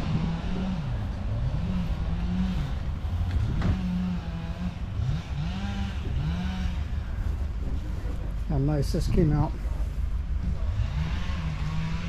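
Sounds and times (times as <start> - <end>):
steady low rumble: 0.0 - 12.0
vehicle engine running: 0.0 - 12.0.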